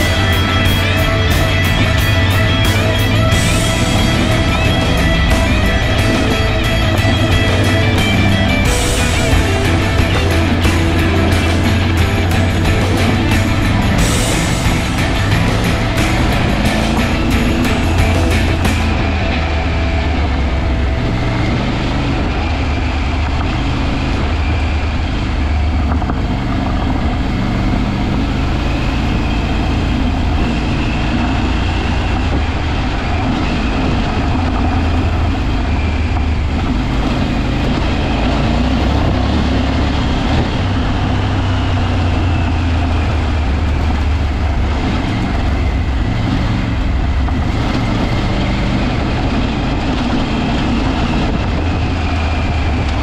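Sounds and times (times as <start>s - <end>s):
road noise: 0.0s - 53.0s
vehicle engine running: 0.0s - 53.0s.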